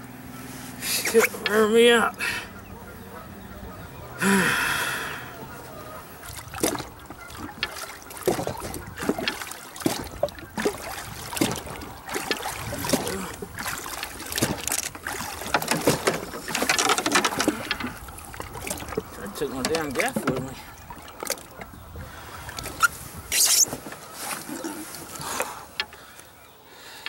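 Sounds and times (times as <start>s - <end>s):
water splashing and trickling: 0.6s - 26.9s
line knocking against hull: 6.3s - 21.8s.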